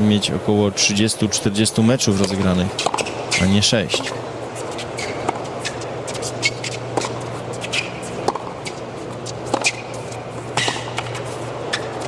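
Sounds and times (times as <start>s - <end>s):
steady low hum: 0.0s - 12.0s
racket hitting tennis ball: 2.3s - 12.0s
sneakers squeaking on court: 2.8s - 12.0s
ball bouncing: 6.4s - 11.2s.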